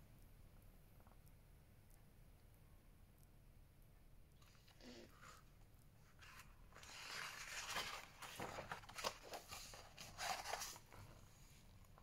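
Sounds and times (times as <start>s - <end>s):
paper page rustling: 4.5s - 12.0s.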